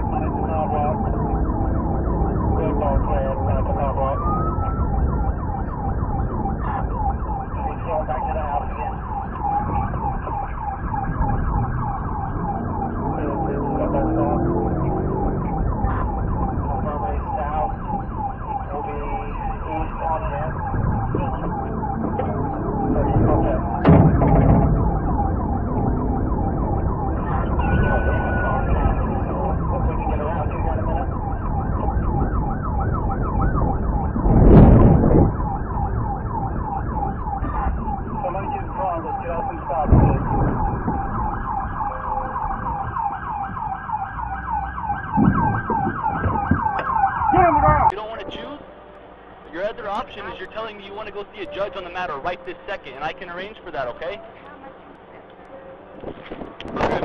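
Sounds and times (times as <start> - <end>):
car engine and road noise: 0.0 - 57.0
police siren yelping: 0.0 - 57.0
sharp thump: 23.8 - 25.0.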